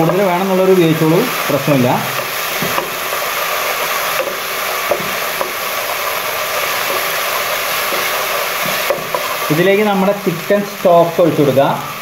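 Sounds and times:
vegetables sizzling in oil: 0:00.0 - 0:12.0
spatula taps on pan: 0:02.2 - 0:03.0, 0:04.2 - 0:05.6, 0:08.6 - 0:09.2.

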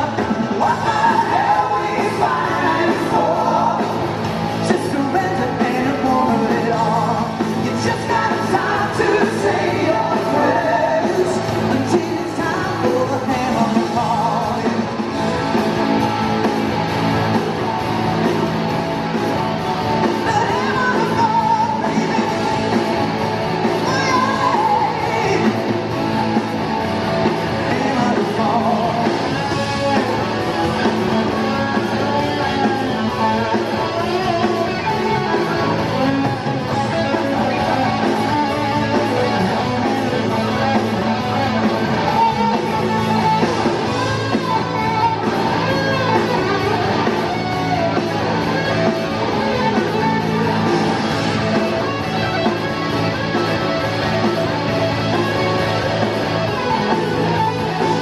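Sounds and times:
male singer: 0:00.0 - 0:15.0, 0:20.1 - 0:22.8, 0:23.7 - 0:25.8, 0:27.5 - 0:30.3, 0:31.1 - 0:46.6
live rock band: 0:00.0 - 0:58.0.

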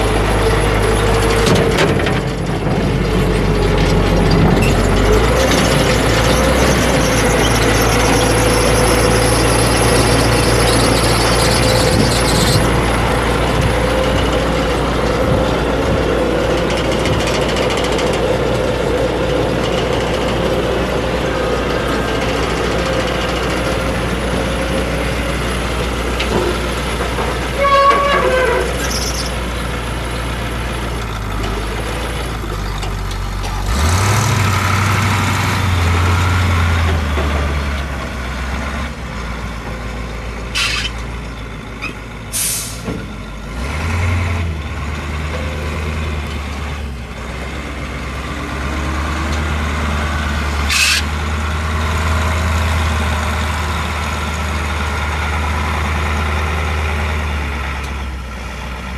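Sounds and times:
diesel truck engine revving: 0:00.0 - 0:58.9
air brakes hissing: 0:42.3 - 0:42.9.

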